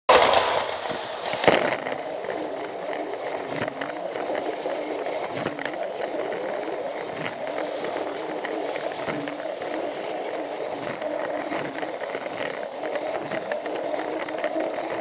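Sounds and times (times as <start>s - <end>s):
toy train motor whir: 0.3s - 15.0s.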